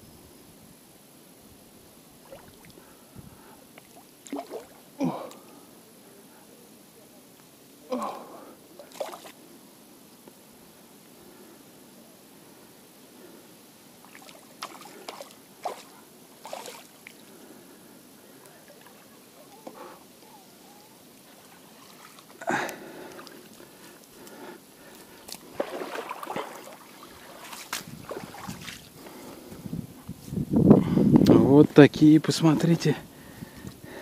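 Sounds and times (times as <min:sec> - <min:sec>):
river water splashing: 0:02.1 - 0:05.8, 0:07.8 - 0:09.5, 0:13.8 - 0:29.5.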